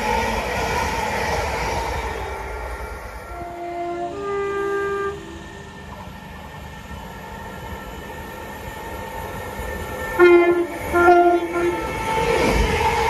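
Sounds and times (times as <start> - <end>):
low hum of electric trains: 0.0 - 13.0
train horn blasts: 3.2 - 5.8, 10.2 - 12.0.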